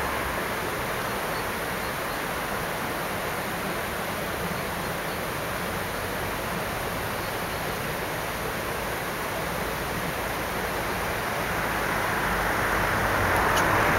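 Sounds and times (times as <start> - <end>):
road traffic hiss: 0.0 - 13.9
vehicle approaching: 10.1 - 13.9.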